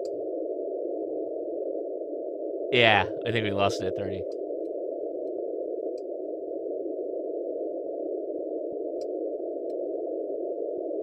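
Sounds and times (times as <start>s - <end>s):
radio static hiss: 2.8s - 4.2s.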